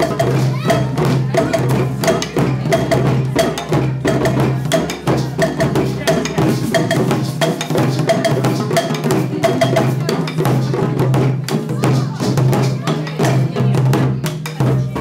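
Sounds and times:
hand drums playing rhythm: 0:00.0 - 0:15.0.

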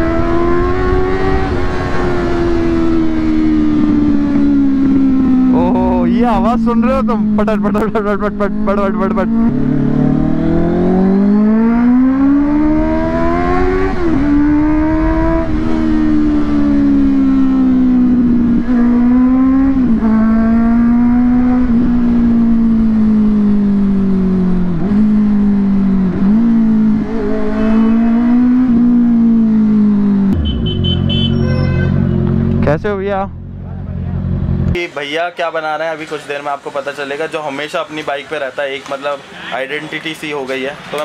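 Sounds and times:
motorcycle engine accelerating: 0:00.0 - 0:34.8.

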